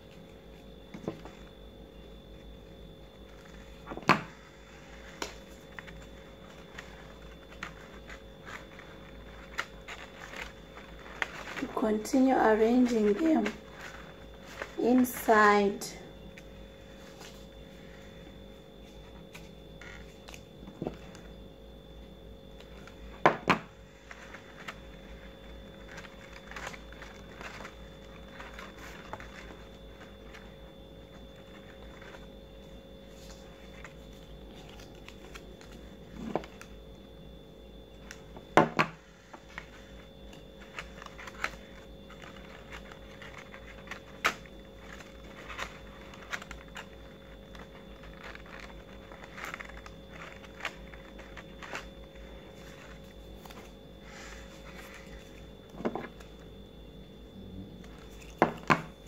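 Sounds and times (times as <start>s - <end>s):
faint steady hum: 0.0s - 59.0s
paper petals rustling and tapping: 3.2s - 15.5s, 22.6s - 36.8s, 37.9s - 56.5s.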